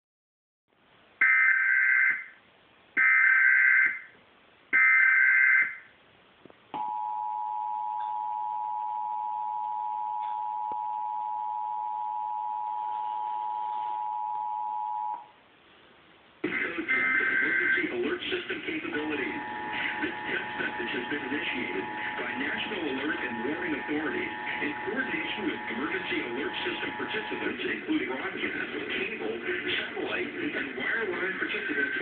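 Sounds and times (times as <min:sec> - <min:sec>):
digital data header bursts: 0:18.8 - 0:32.0
two-tone attention signal: 0:19.2 - 0:27.9.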